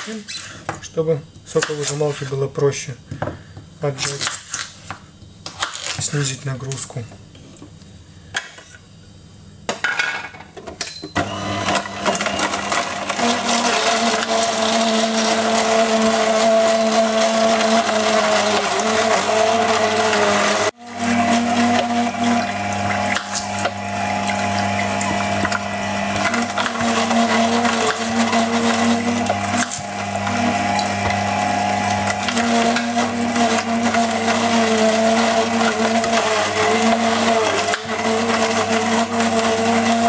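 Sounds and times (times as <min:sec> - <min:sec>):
juicer motor hum: 0:11.2 - 0:40.0
screw crushing carrots: 0:23.0 - 0:31.2.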